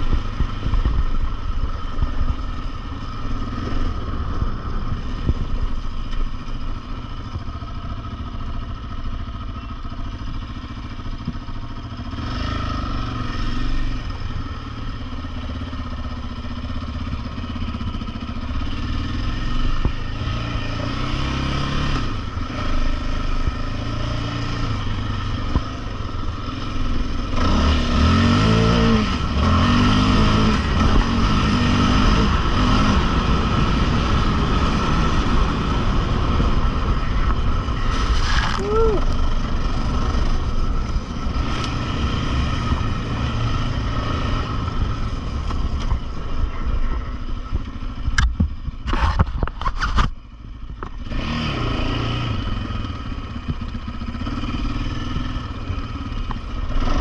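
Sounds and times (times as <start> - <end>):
quad engine revving: 12.0 - 14.7, 18.4 - 46.7, 50.9 - 57.0.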